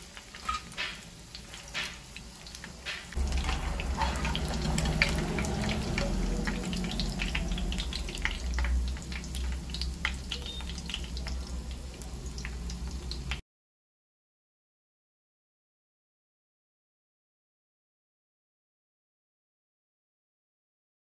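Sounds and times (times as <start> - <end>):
food sizzling in hot oil: 0.0 - 13.4
low steady rumble: 3.2 - 13.3.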